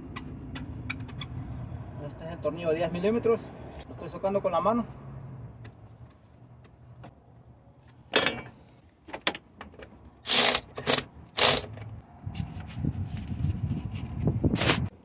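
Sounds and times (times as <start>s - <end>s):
cordless power tool spinning: 10.3s - 10.6s, 11.4s - 11.7s.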